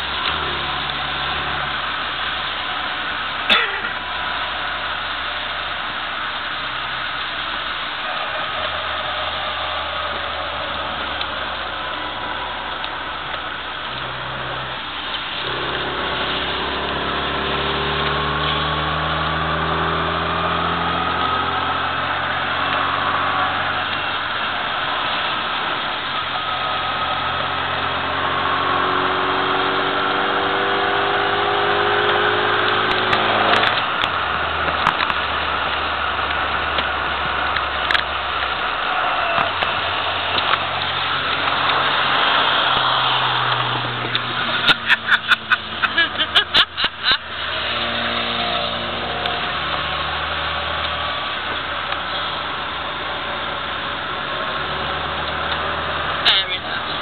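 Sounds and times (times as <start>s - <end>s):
car engine revving: 0.0s - 57.0s
tyres hissing on wet track: 0.0s - 57.0s.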